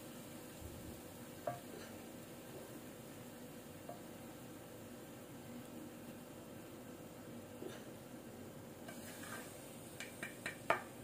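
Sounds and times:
spatula tap: 0:01.4 - 0:01.9, 0:10.0 - 0:11.0
spatula stirring thick food: 0:08.8 - 0:10.7.

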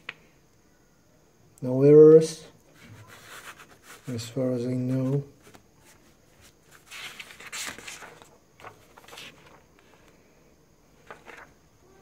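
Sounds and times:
paper pages turning: 0:02.8 - 0:04.1, 0:05.4 - 0:10.1, 0:11.0 - 0:11.6.

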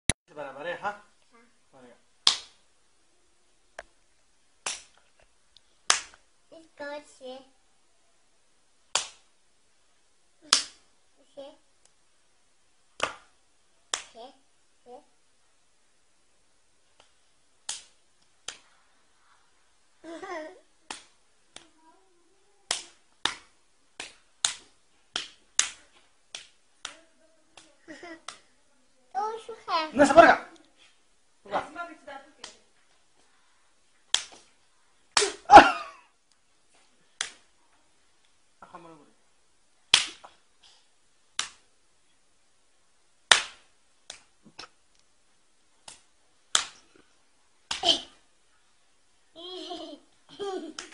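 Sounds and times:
hand slapping a cheek: 0:02.2 - 0:02.6, 0:04.6 - 0:05.0, 0:05.9 - 0:06.2, 0:08.9 - 0:09.3, 0:10.4 - 0:10.8, 0:13.0 - 0:13.3, 0:13.9 - 0:14.1, 0:17.0 - 0:18.7, 0:20.9 - 0:21.8, 0:22.7 - 0:27.0, 0:27.6 - 0:28.5, 0:34.1 - 0:34.5, 0:35.1 - 0:35.5, 0:36.8 - 0:37.5, 0:39.9 - 0:40.4, 0:41.4 - 0:41.6, 0:43.3 - 0:44.8, 0:45.8 - 0:47.0, 0:47.7 - 0:48.2.

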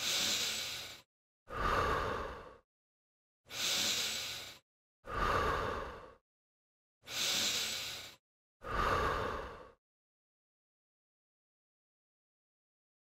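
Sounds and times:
person breathing in and out: 0:00.0 - 0:02.7, 0:03.4 - 0:06.2, 0:07.0 - 0:09.8.

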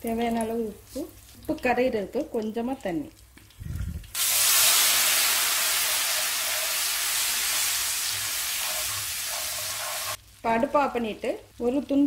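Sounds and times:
oil hissing and sizzling: 0:03.2 - 0:11.0.

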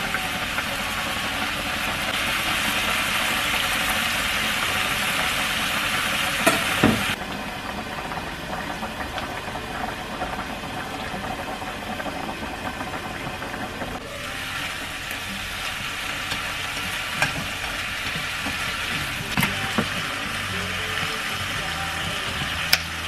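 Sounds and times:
chicken and onion sizzling: 0:00.0 - 0:23.0
pans bubbling on hob: 0:00.0 - 0:23.0
chopsticks clicking against pan: 0:22.7 - 0:22.9.

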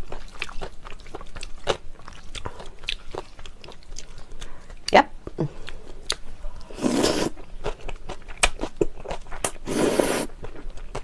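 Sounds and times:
wet chewing and lip-smacking: 0:00.0 - 0:06.6, 0:07.3 - 0:11.0
noodles slurped: 0:06.8 - 0:07.4, 0:09.4 - 0:10.4.

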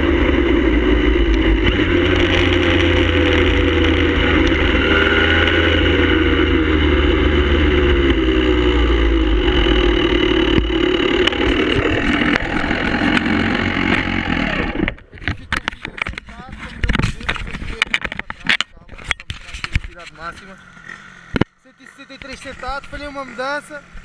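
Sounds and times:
wind rushing over microphone: 0:00.0 - 0:18.3
motorcycle engine running: 0:00.0 - 0:18.7, 0:19.4 - 0:24.0.

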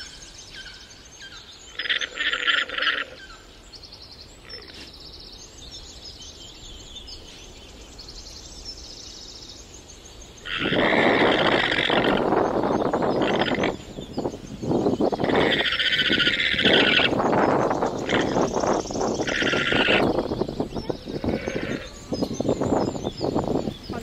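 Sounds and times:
birds chirping: 0:00.0 - 0:24.0
pulsed rattling bird call: 0:01.6 - 0:03.4, 0:10.4 - 0:24.0.

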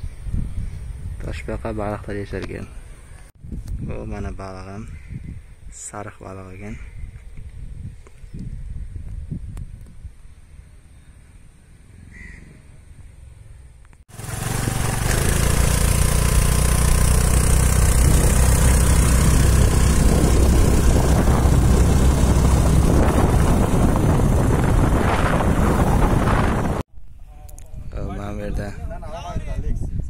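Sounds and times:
wind rushing over microphone: 0:00.0 - 0:05.8, 0:06.8 - 0:10.6, 0:17.0 - 0:30.0
motorcycle engine running: 0:14.1 - 0:26.8.

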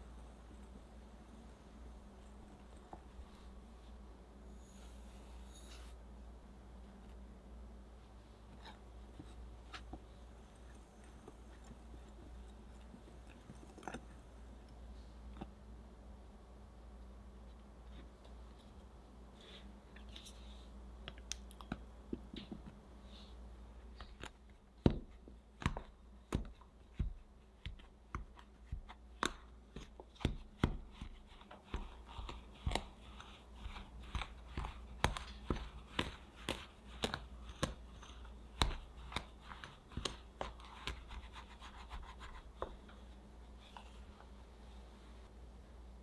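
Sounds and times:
soft scraping: 0:02.2 - 0:06.2.

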